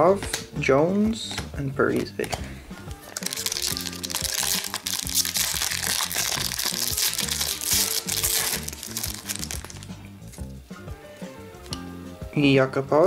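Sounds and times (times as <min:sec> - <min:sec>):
background music with bass line: 0:00.0 - 0:13.0
foil wrapper crinkling: 0:03.1 - 0:09.9.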